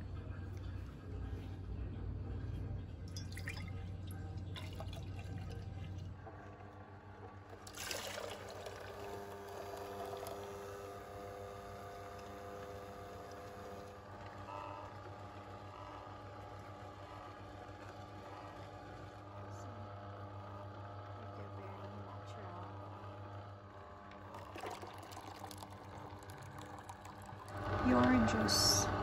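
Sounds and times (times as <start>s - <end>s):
juicer motor hum: 0.0s - 29.0s
juice trickling and pouring: 3.0s - 14.5s, 24.0s - 28.2s.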